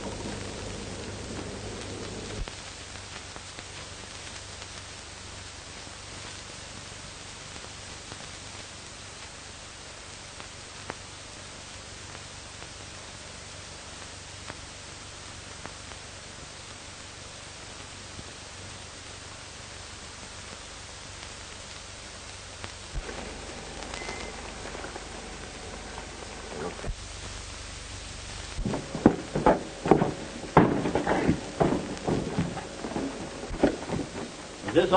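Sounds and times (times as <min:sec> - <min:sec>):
film soundtrack hiss and hum: 0:00.0 - 0:34.9
clicks: 0:23.0 - 0:27.0, 0:28.6 - 0:34.9
fuller lower sound: 0:23.0 - 0:27.4.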